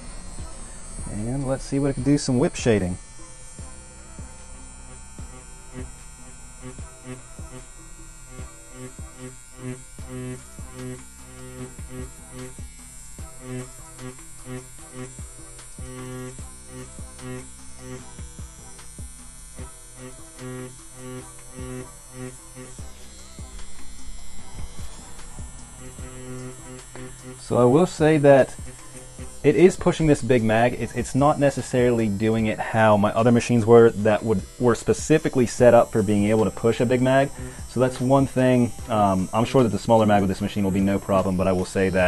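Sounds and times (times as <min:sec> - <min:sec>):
tattoo machine buzzing: 0:00.0 - 0:42.0.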